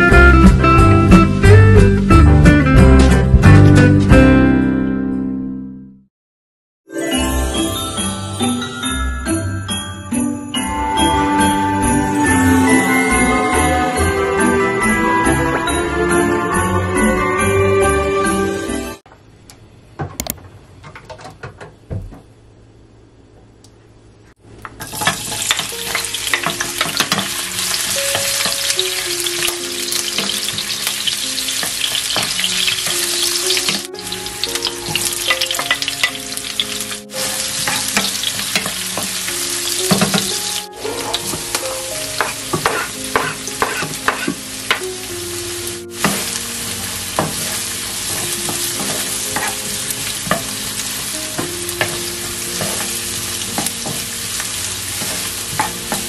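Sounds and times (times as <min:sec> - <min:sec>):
food sizzling in hot oil: 0:24.8 - 0:56.0
spatula scraping wok: 0:24.8 - 0:56.0.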